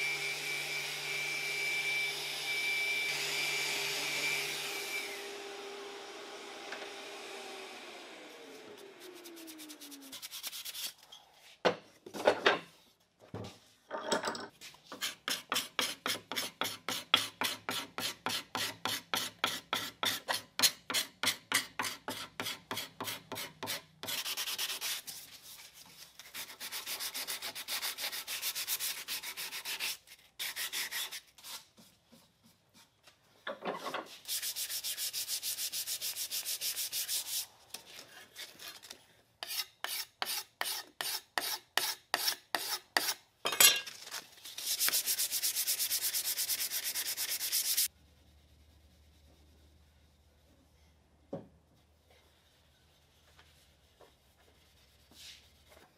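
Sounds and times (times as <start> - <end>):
sandpaper scraping wood: 8.7 - 11.0, 14.9 - 32.9, 34.0 - 43.2, 44.4 - 50.5, 51.8 - 55.9.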